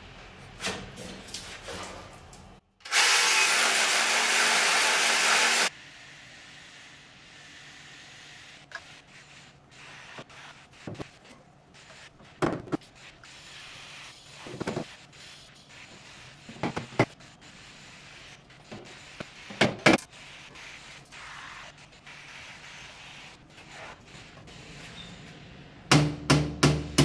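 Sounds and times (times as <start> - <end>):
rotary hammer drill boring into wall: 2.9 - 5.7.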